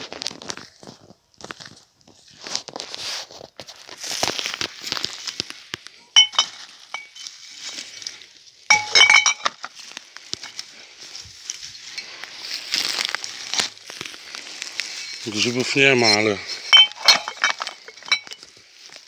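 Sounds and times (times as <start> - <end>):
rustling twigs and undergrowth: 0.0 - 19.0
glass bottles clinking: 6.1 - 7.4, 8.7 - 9.7, 15.0 - 18.5.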